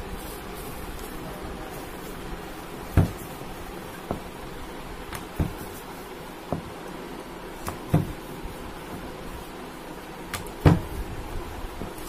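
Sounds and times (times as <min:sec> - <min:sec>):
steady background hiss: 0:00.0 - 0:12.0
rolling pin knocking on board: 0:02.9 - 0:03.2, 0:05.1 - 0:05.6, 0:07.6 - 0:08.2, 0:10.3 - 0:10.9.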